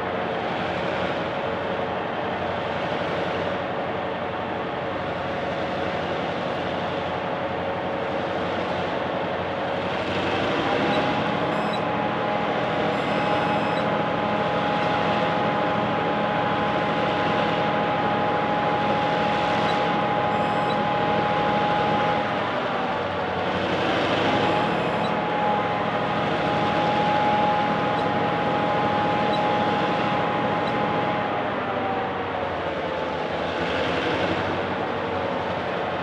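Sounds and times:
diesel locomotives under heavy load: 0.0 - 36.0.

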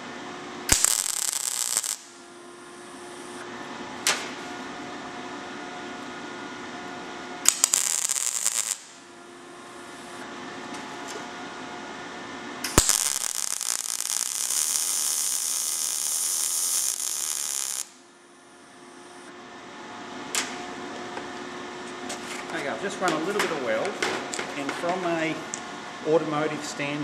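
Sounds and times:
welder arc crackling: 0.7 - 2.2, 7.4 - 9.0, 12.7 - 18.0
welding arc striking crack: 0.7 - 2.2, 7.4 - 9.0, 12.7 - 18.0.

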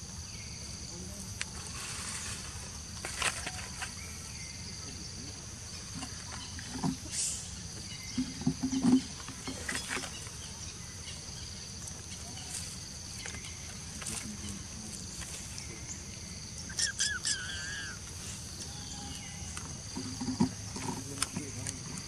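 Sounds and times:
high-pitched insect drone: 15.7 - 20.7.

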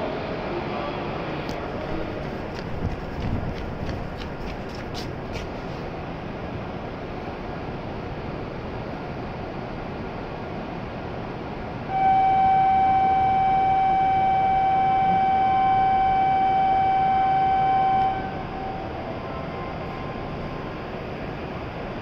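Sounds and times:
steady electronic departure tone: 11.9 - 21.8.

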